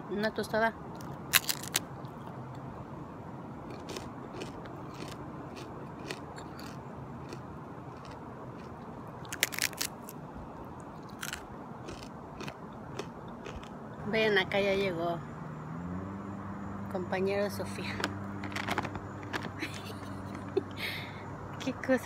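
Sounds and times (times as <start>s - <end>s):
crunching of fried tortilla: 1.3s - 1.9s, 3.7s - 10.2s, 11.0s - 13.7s.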